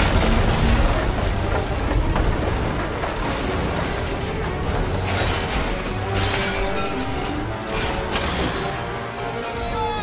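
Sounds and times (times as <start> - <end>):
low rumble of fire: 0.0 - 5.8
wooden structure crashing: 0.0 - 9.0
film score music: 0.0 - 10.0.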